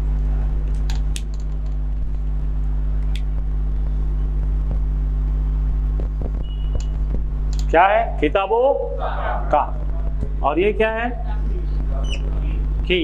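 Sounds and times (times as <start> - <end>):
steady low hum: 0.0 - 13.0
marker squeak: 12.0 - 12.3.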